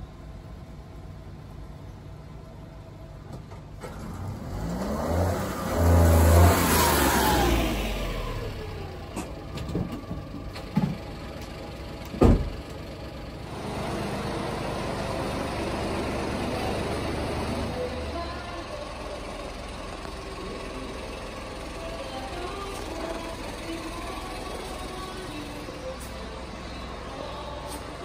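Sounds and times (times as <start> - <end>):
engine idling: 0.0 - 4.4, 7.4 - 28.0
vehicle driving past: 3.8 - 9.0
sharp thump: 12.2 - 12.5.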